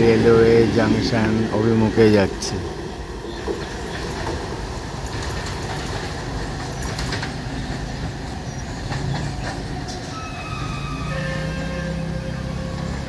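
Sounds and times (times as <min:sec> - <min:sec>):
train rumbling: 0:00.0 - 0:13.0
wheels clicking over rail joints: 0:03.0 - 0:13.0.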